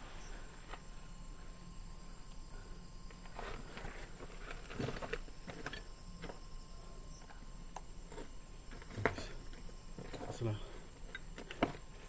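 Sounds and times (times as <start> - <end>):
faint steady high tone: 0.0 - 12.0.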